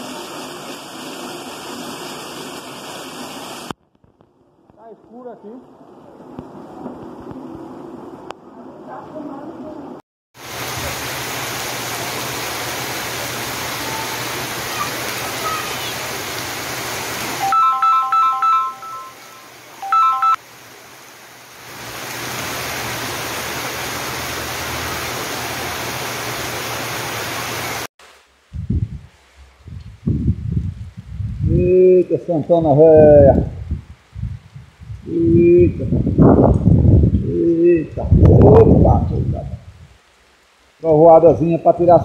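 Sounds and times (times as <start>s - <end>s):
heavy rain pouring: 0.0s - 3.8s, 5.2s - 32.0s
running water: 10.4s - 27.9s
electronic ringtone melody: 17.4s - 20.4s.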